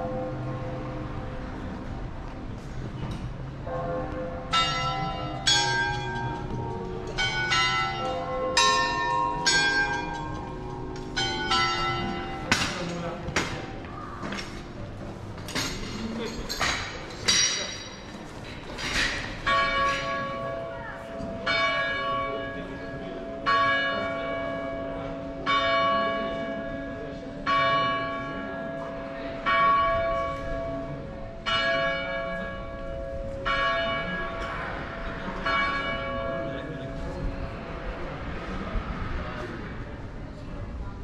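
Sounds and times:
tower bell striking: 3.6s - 14.8s, 19.1s - 37.2s.

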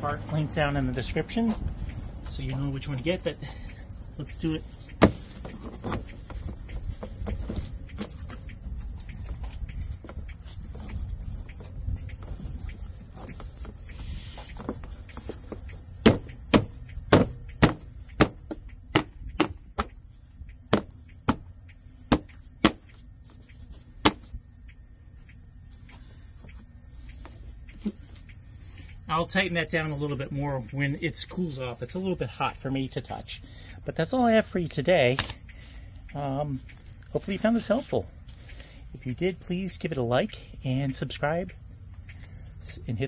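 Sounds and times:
insects chirring: 0.0s - 43.0s
sharp clicks and knocks: 4.5s - 28.4s.

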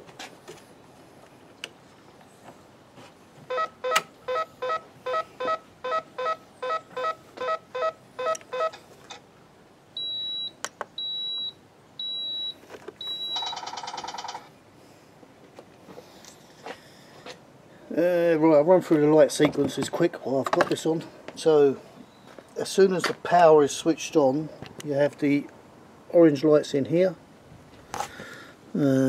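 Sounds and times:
longer high beeps: 10.0s - 13.6s.

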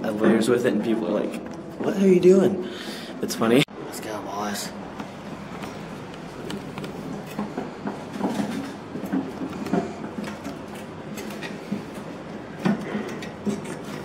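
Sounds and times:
luggage cart rolling: 5.0s - 14.0s.

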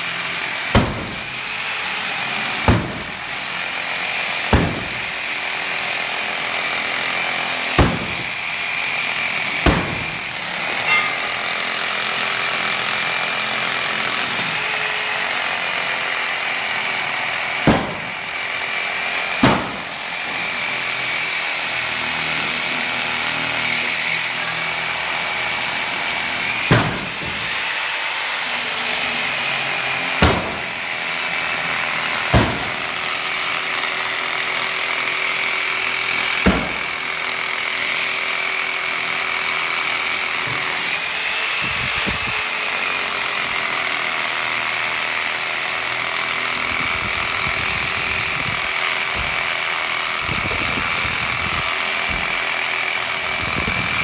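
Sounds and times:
angle grinder cutting steel: 0.0s - 54.0s
sharp knocks: 0.7s - 1.4s, 2.6s - 3.2s, 4.5s - 5.2s, 7.8s - 8.4s, 9.4s - 11.4s, 17.6s - 18.2s, 19.4s - 20.0s, 26.6s - 27.6s, 30.2s - 30.8s, 32.3s - 33.0s, 36.3s - 37.1s.

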